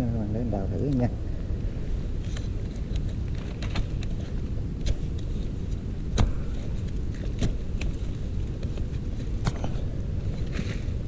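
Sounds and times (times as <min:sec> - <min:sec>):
steady low rumble: 0:00.0 - 0:11.0
digging tool striking earth: 0:04.8 - 0:09.8.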